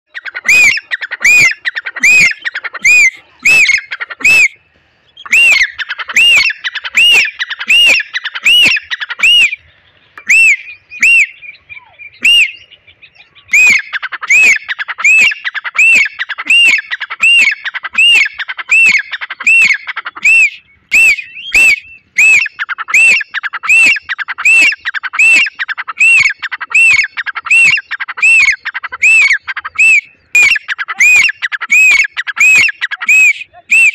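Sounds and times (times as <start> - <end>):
francolin calling: 0.1 - 33.9.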